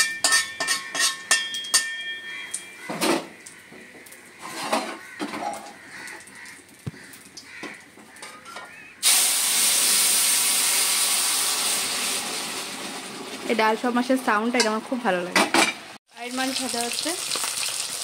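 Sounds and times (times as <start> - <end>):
utensils knocking: 0.0 - 3.2
loud sizzling hiss in hot oil: 9.0 - 13.5, 16.2 - 18.0.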